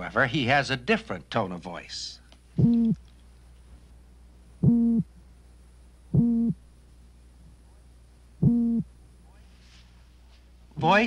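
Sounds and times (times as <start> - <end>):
toadfish hooting: 2.6 - 3.0, 4.6 - 5.1, 6.1 - 6.6, 8.4 - 8.9.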